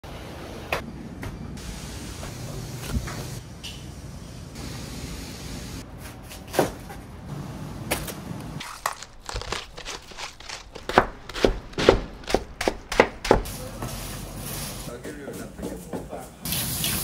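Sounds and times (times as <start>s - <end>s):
knife chopping cabbage on board: 8.6s - 13.5s.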